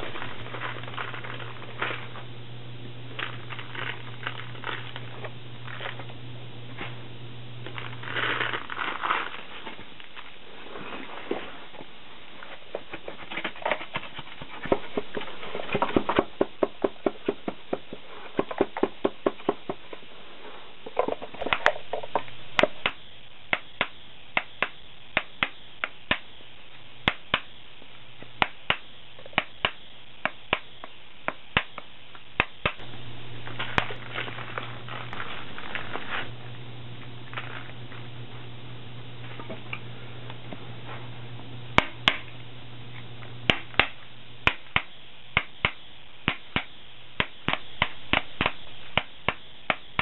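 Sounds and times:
wooden rammer knocking sand: 13.4 - 20.0.

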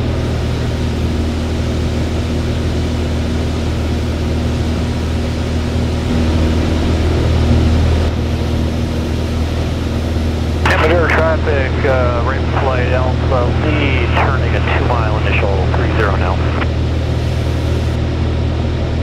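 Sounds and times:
light aircraft engine drone: 0.0 - 19.0
airflow noise: 5.0 - 18.0.

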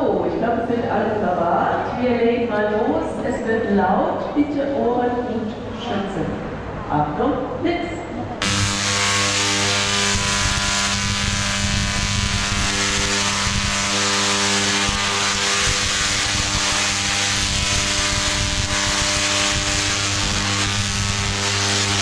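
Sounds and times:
deep hum: 8.4 - 22.0
electric sparks crackling buzz: 8.4 - 22.0.

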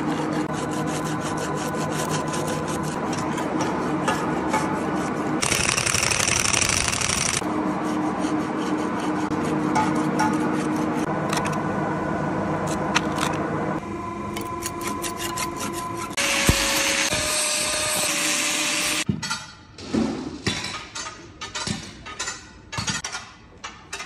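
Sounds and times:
angle grinder on metal: 14.6 - 19.1.

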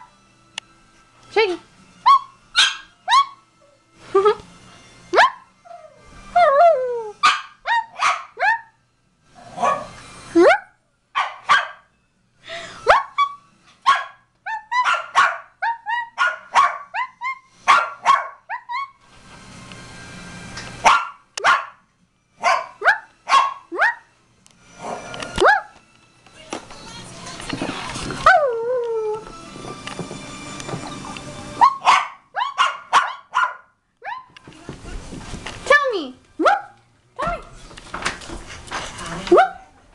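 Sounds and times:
dog whining: 2.0 - 4.4, 5.1 - 8.8, 9.5 - 10.8, 12.8 - 13.4, 14.4 - 19.0, 22.6 - 24.1, 24.8 - 25.8, 28.2 - 29.4, 30.9 - 33.2, 34.0 - 34.4
small dog barking: 2.1 - 3.4, 7.2 - 8.7, 11.2 - 11.8, 13.9 - 17.1, 17.7 - 18.8, 20.8 - 21.8, 22.4 - 24.1, 31.6 - 34.3, 36.4 - 36.8, 39.3 - 39.7.

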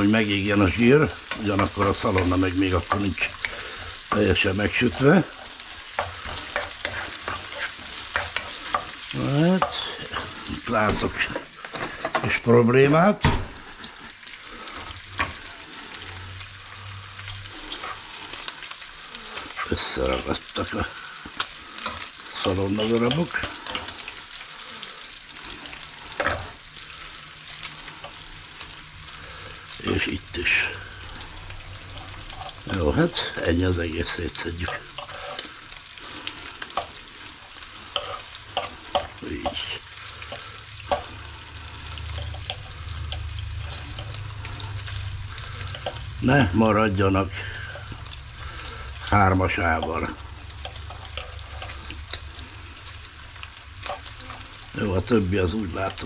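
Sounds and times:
bacon sizzling in a frying pan: 0.0 - 56.0
utensil scraping a pan: 0.6 - 13.0, 34.1 - 46.1.

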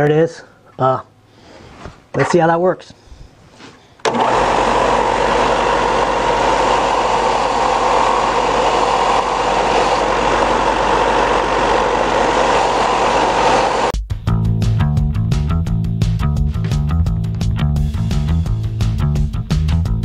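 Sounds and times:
belt sander sanding wood: 4.1 - 13.9.

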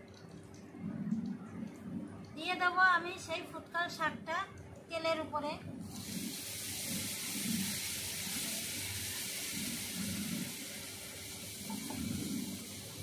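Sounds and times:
greens sizzling in hot oil: 5.9 - 13.0.

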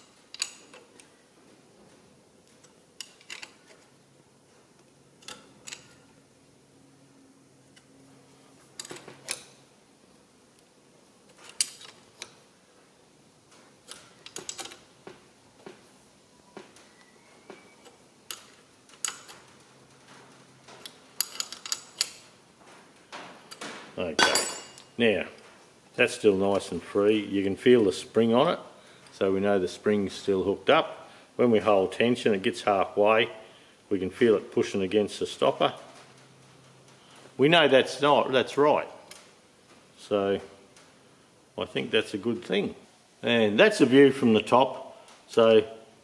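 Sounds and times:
spanner clicking on metal nuts: 0.0 - 0.9.

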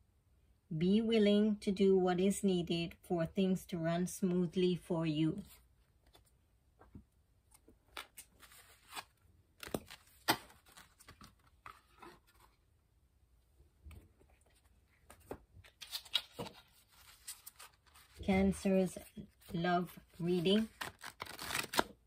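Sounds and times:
cards and cardboard box handled: 7.5 - 12.6, 14.2 - 18.2, 19.3 - 22.0.

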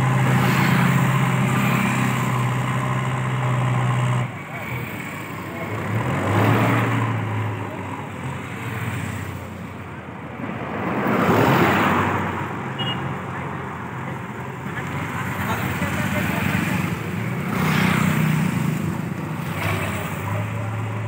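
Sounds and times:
diesel engine humming: 0.0 - 10.4.

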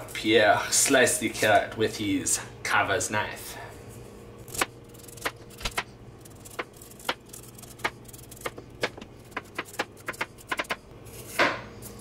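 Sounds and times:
knife slicing carrot: 4.5 - 11.5.

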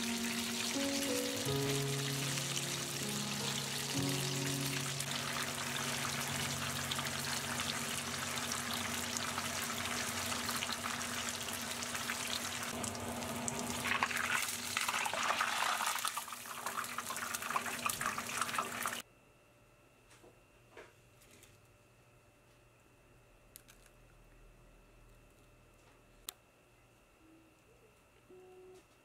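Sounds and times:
shrimp sizzling in hot oil: 0.0 - 19.0.

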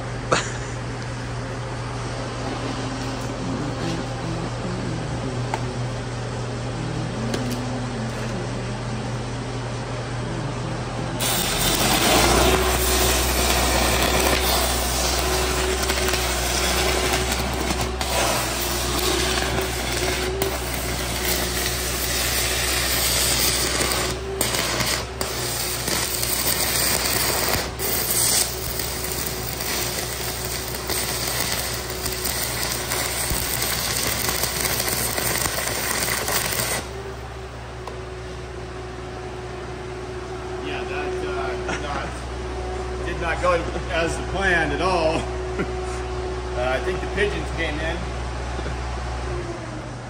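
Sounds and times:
welder motor humming: 2.4 - 38.2
welding arc crackling: 11.2 - 37.0.

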